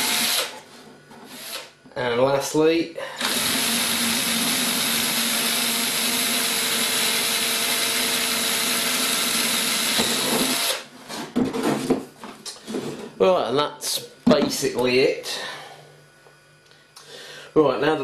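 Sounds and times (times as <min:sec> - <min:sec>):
cordless drill boring into plastic: 0:00.0 - 0:00.6, 0:01.3 - 0:01.7, 0:03.2 - 0:10.8.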